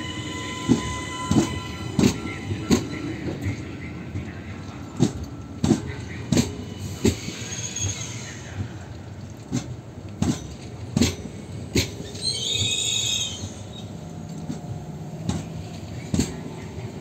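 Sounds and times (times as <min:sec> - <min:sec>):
low train rumble and hum: 0:00.0 - 0:17.0
high-pitched squeal from running gear: 0:06.6 - 0:08.6, 0:12.0 - 0:13.9.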